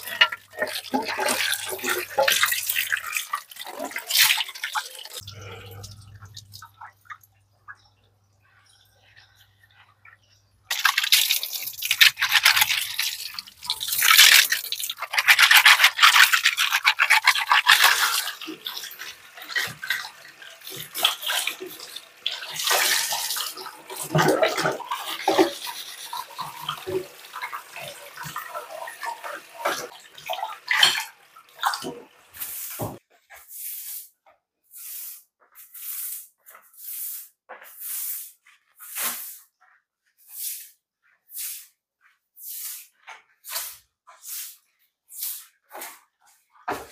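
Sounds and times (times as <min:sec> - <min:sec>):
tap water splashing on dishes: 0:00.0 - 0:07.9, 0:10.0 - 0:33.0
broom sweeping tiled floor: 0:31.8 - 0:46.9.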